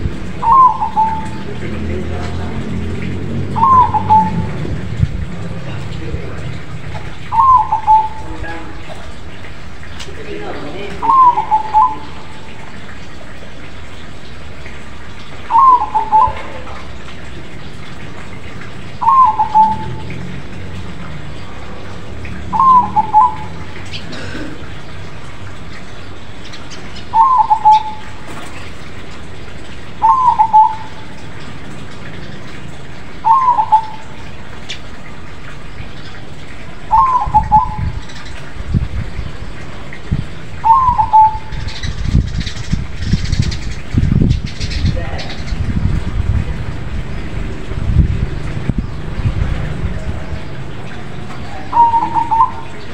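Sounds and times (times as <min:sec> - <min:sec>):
dove cooing: 0:00.4 - 0:01.7, 0:03.5 - 0:04.7, 0:07.2 - 0:08.3, 0:11.0 - 0:12.5, 0:15.5 - 0:17.1, 0:19.0 - 0:20.1, 0:22.5 - 0:24.7, 0:27.1 - 0:28.3, 0:30.0 - 0:31.2, 0:33.2 - 0:34.2, 0:36.9 - 0:37.9, 0:40.6 - 0:41.8, 0:51.4 - 0:52.9.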